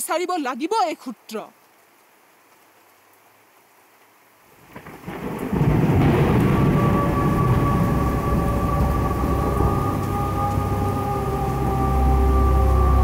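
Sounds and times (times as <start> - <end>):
thunder rumbling: 4.6 - 13.0.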